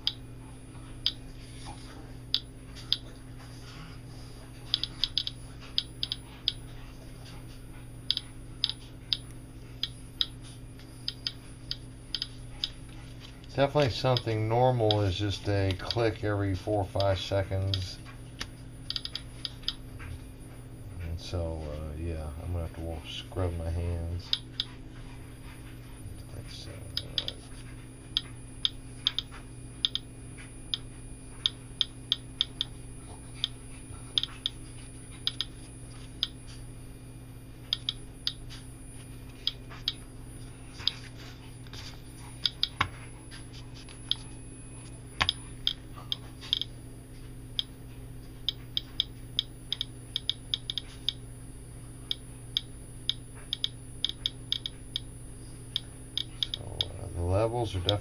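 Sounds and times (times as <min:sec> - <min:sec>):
geiger counter clicking: 0:00.0 - 0:00.2, 0:04.7 - 0:06.6, 0:08.1 - 0:10.4, 0:11.0 - 0:12.8, 0:14.1 - 0:16.1, 0:18.9 - 0:19.8, 0:26.9 - 0:27.4, 0:28.1 - 0:30.1, 0:30.7 - 0:34.6, 0:35.2 - 0:35.6, 0:37.7 - 0:38.4, 0:42.4 - 0:43.0, 0:45.2 - 0:46.7, 0:48.4 - 0:51.2, 0:52.1 - 0:55.1, 0:55.7 - 0:57.0, 0:57.7 - 0:58.0
faint steady hum: 0:00.0 - 0:58.0.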